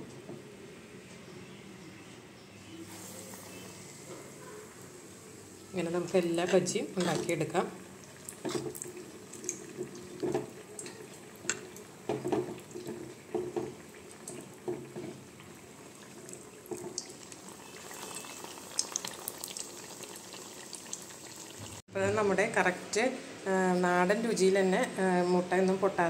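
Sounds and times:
hot oil sizzling and crackling: 0:02.8 - 0:21.8.

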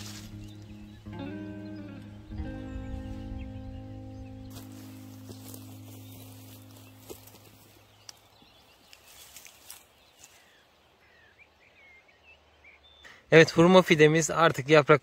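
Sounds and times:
soft background music: 0:00.0 - 0:09.8
faint birds chirping: 0:00.0 - 0:15.0.

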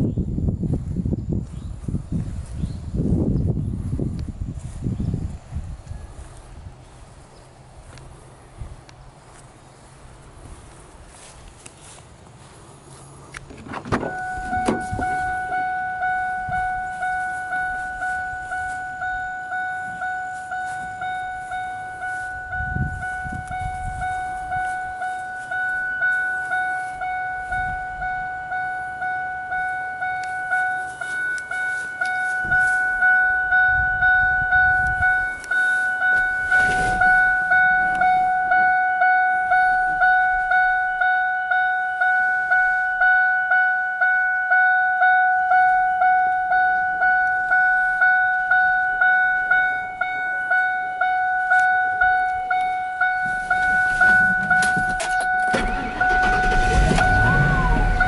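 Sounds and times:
car door warning chime: 0:13.9 - 0:58.0.

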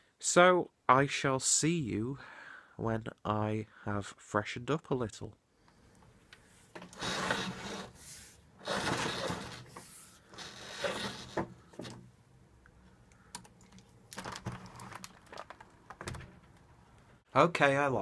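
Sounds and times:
roller blind chain rustling: 0:08.6 - 0:11.4.

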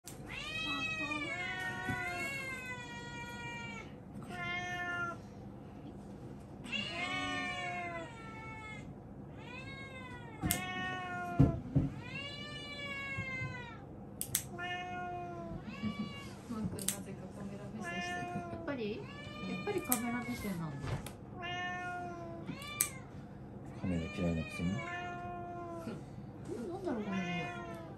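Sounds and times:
cat meowing: 0:00.2 - 0:05.2, 0:06.6 - 0:16.4, 0:17.8 - 0:23.1, 0:23.7 - 0:26.0, 0:26.9 - 0:27.9
knock: 0:11.4 - 0:12.0
claw clipper clicks: 0:14.2 - 0:14.5, 0:16.8 - 0:17.0, 0:19.8 - 0:20.1, 0:22.6 - 0:23.0.

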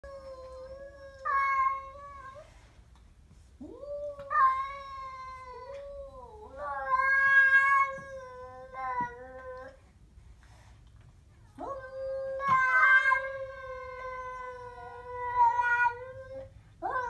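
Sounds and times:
cat growling and yowling: 0:03.6 - 0:09.8, 0:11.6 - 0:17.0.

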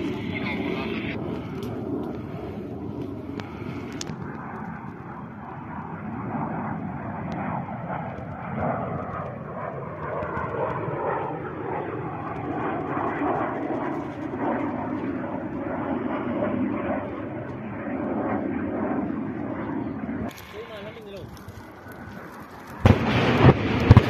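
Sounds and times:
military aircraft engine drone: 0:00.0 - 0:24.0.

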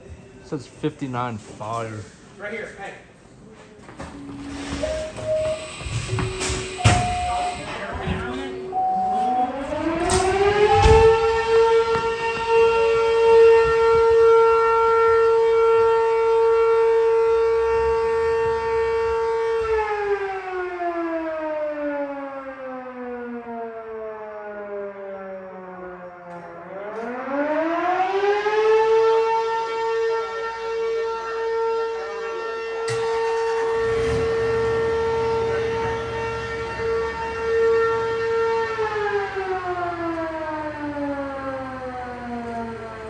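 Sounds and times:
fire siren wailing: 0:04.0 - 0:43.0.

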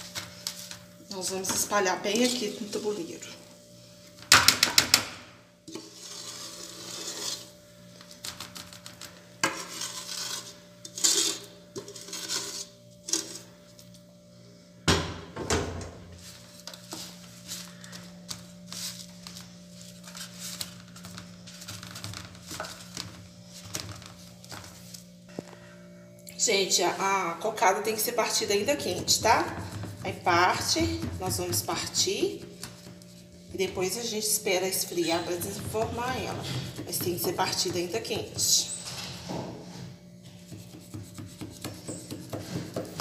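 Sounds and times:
faint steady hum: 0:00.0 - 0:43.0
wooden spoon scraping a pot: 0:01.5 - 0:03.3, 0:05.7 - 0:13.7, 0:16.2 - 0:25.1, 0:27.4 - 0:43.0
spoon scraping metal tray: 0:02.1 - 0:03.0, 0:05.7 - 0:13.6, 0:33.6 - 0:39.2.

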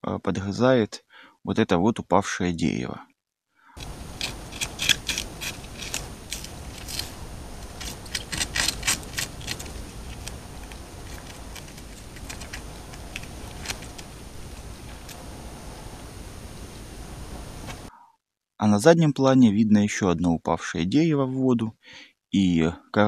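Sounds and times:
beaver gnawing wood: 0:03.8 - 0:16.0
microphone hiss: 0:03.8 - 0:17.9.

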